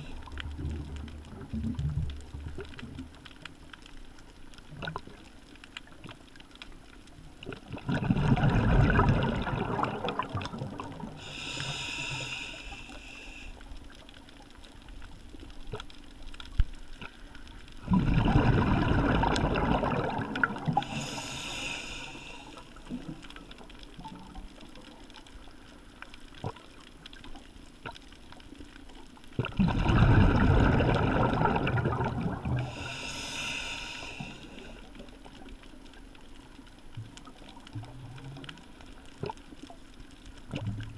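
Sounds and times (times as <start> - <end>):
regulator inhalation hiss: 11.2 - 13.6, 20.8 - 22.9, 32.7 - 34.8
regulator exhalation bubbling: 29.5 - 34.5.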